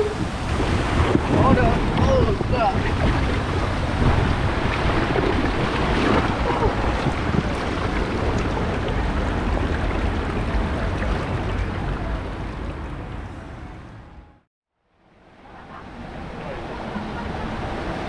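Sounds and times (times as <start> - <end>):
water rushing and splashing: 0.0 - 14.0, 15.0 - 18.0
wind rumbling on microphone: 0.0 - 14.4.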